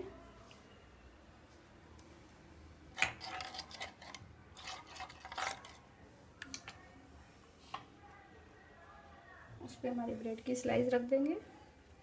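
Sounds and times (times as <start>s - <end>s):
scraping and clattering: 3.0s - 5.8s.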